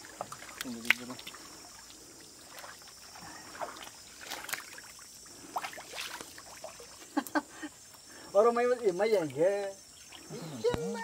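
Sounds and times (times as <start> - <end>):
mud sloshing and squelching: 0.0 - 7.0
water splashing: 0.0 - 7.1, 8.7 - 11.0.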